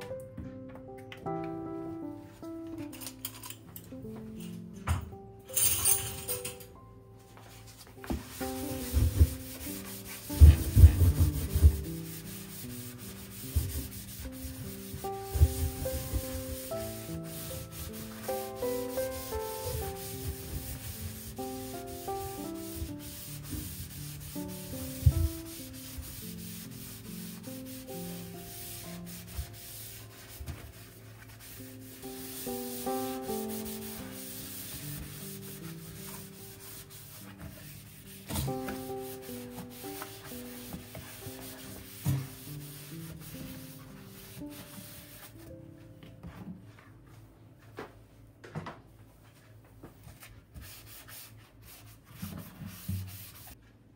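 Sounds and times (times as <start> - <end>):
soft background music: 0.0 - 53.6
scrubbing against a surface: 7.5 - 45.4, 50.1 - 53.6.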